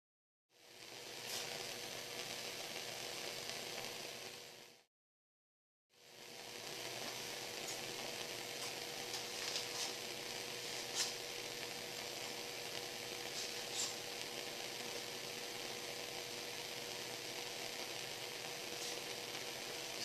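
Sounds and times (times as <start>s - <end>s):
faint crackles: 0.6s - 4.9s, 6.0s - 20.0s
gas flame hissing: 0.6s - 4.9s, 6.0s - 20.0s
faint steady hum: 6.0s - 20.0s.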